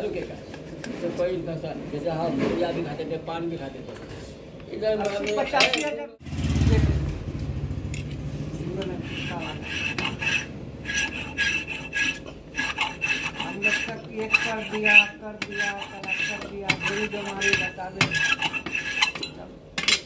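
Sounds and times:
valve lapping rasp: 0:08.7 - 0:19.4.

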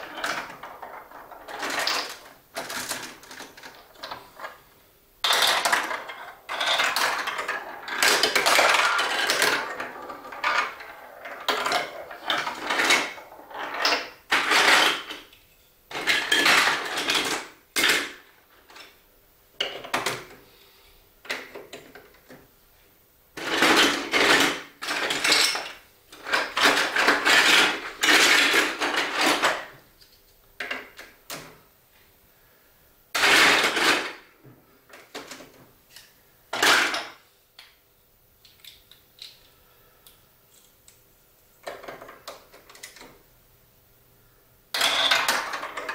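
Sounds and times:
marbles rattling down plastic track: 0:00.0 - 0:04.2, 0:05.2 - 0:15.1, 0:33.2 - 0:34.2, 0:44.8 - 0:45.9.

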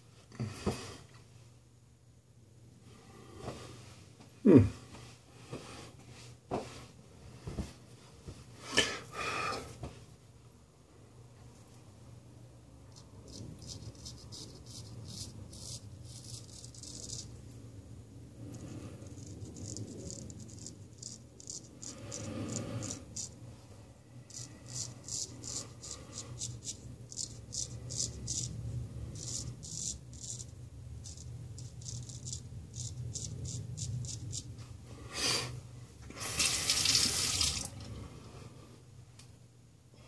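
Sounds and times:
razor scraping stubble: 0:12.9 - 0:17.4, 0:18.6 - 0:23.4, 0:24.3 - 0:34.5.

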